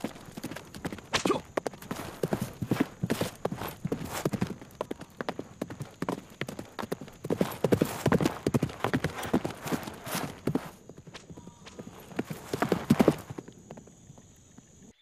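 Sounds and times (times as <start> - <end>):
horse hooves galloping: 0.0 - 14.9.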